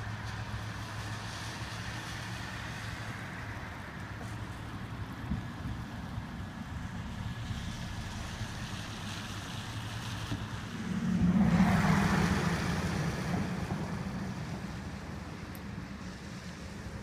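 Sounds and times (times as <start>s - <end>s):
low rumble: 6.7s - 16.1s
vehicle driving past: 6.8s - 16.5s.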